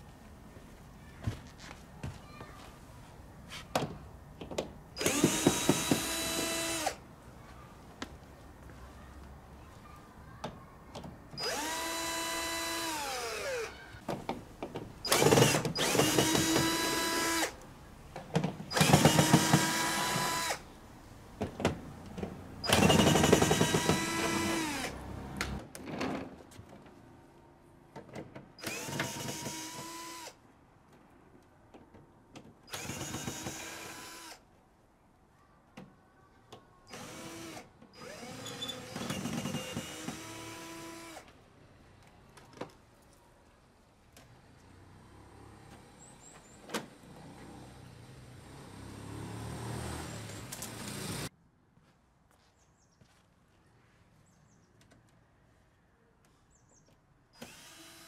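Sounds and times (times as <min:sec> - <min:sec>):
cordless drill whirring: 0:05.0 - 0:07.0, 0:11.4 - 0:13.8, 0:15.1 - 0:17.6, 0:18.7 - 0:20.6, 0:22.7 - 0:25.0, 0:28.6 - 0:30.4, 0:32.7 - 0:34.4, 0:36.9 - 0:41.3, 0:57.4 - 0:58.0.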